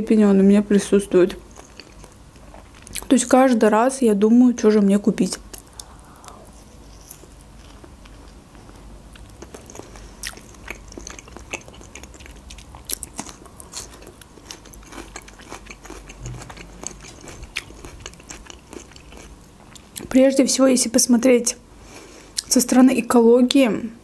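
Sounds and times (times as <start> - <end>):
chewing and biting fish: 7.0 - 19.8.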